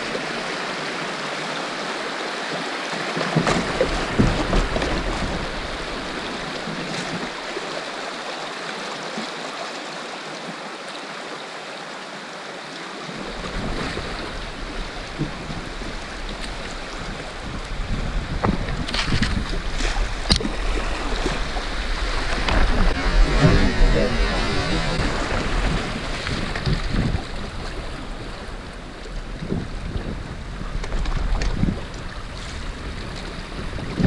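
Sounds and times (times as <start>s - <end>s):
river water rushing over rocks: 0.0s - 33.9s
water splashing against kayak hull: 2.9s - 8.0s, 13.1s - 34.0s.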